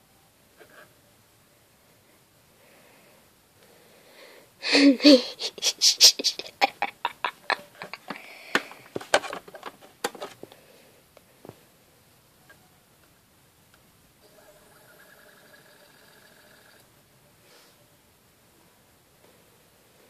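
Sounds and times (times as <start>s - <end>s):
discs clicking and clattering: 7.8s - 10.6s.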